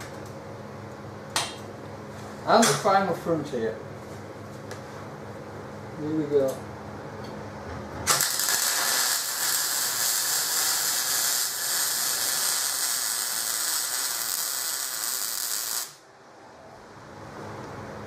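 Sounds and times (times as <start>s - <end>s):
welder arc crackling sizzle: 8.1s - 16.0s.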